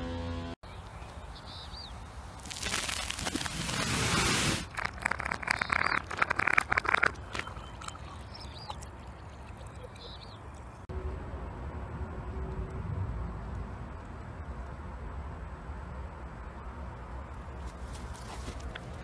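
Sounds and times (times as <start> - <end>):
bird chirps: 0.6 - 2.0, 7.2 - 10.8
fizzing and crackling: 2.3 - 10.9.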